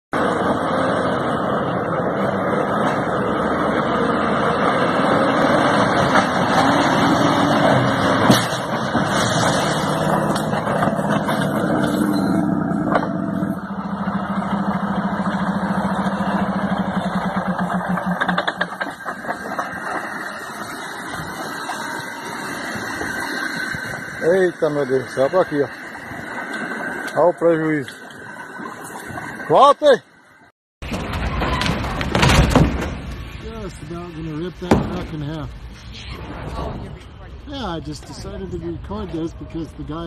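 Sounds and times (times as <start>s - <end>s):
heavy truck engine running: 0.2s - 27.4s.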